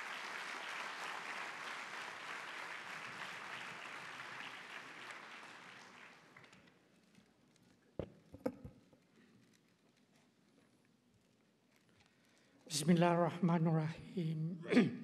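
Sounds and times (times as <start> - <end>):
audience applauding: 0.0 - 6.7.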